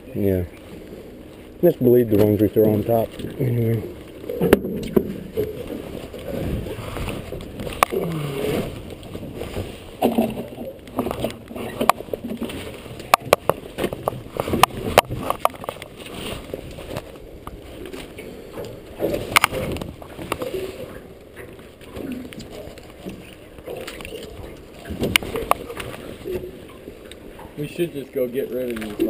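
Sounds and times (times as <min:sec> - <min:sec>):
water sloshing at a hull: 0:00.0 - 0:29.0
muffled knocks and clatter: 0:04.4 - 0:07.9.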